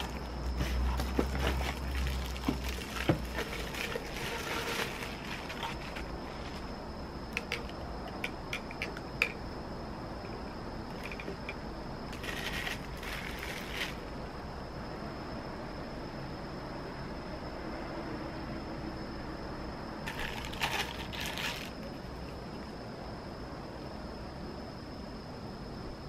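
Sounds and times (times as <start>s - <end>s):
plastic bags crinkling: 0.0s - 6.2s, 12.2s - 14.0s, 20.1s - 21.9s
tubes clicking and tapping: 7.3s - 9.4s.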